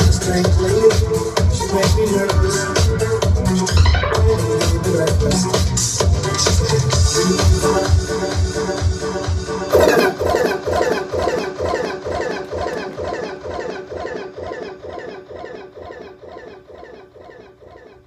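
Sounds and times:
repeating chirpy electronic phrase: 9.7s - 18.0s.

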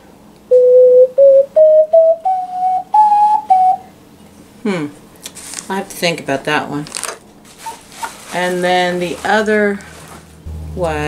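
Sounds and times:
ocarina playing a rising scale: 0.5s - 3.9s, 10.3s - 11.0s.

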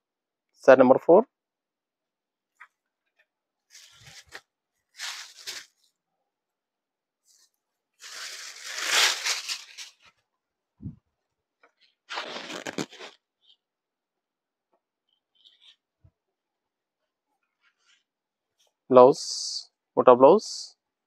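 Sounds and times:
fabric rustling: 3.6s - 5.9s, 7.2s - 10.2s, 12.0s - 13.2s.

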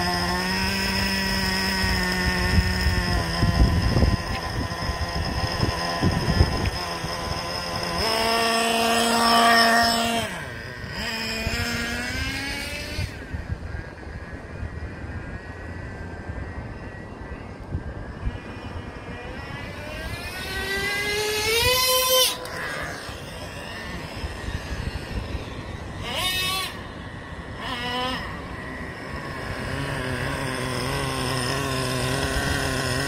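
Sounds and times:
model engine screaming at high revs: 0.0s - 33.0s.

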